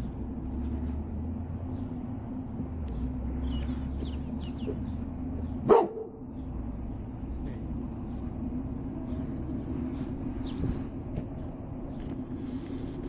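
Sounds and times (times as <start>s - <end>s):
dog barking: 5.6s - 6.2s.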